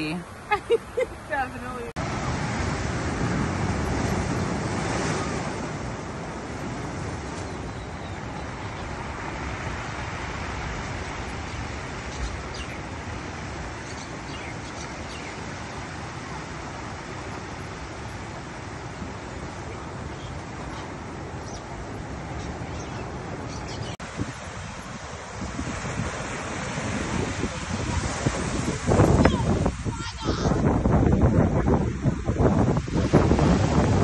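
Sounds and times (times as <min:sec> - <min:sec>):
waves on rocks: 0:00.0 - 0:34.0.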